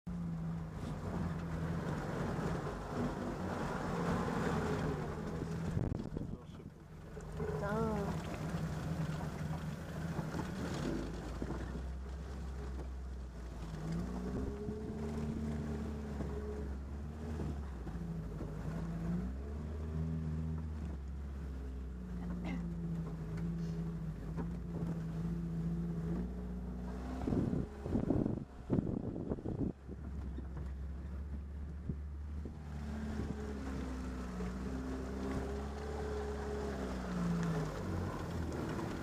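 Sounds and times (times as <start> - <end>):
jeep engine running: 0.1 - 39.0.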